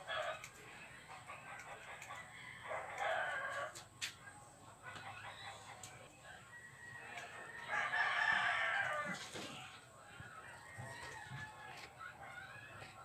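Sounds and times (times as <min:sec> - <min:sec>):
rooster crowing: 0:02.3 - 0:03.7, 0:06.5 - 0:09.2.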